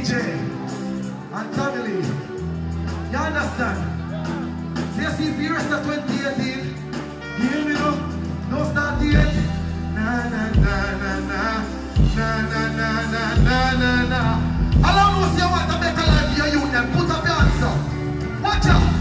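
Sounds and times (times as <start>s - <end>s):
live band playing dancehall: 0.0s - 19.0s
man singing into a microphone: 5.2s - 17.7s.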